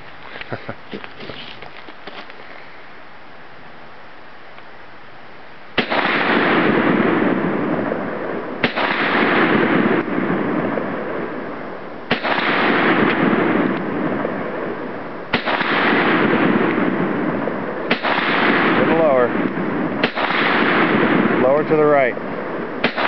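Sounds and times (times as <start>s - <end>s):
rifle shots: 5.8s - 11.3s, 12.1s - 23.0s.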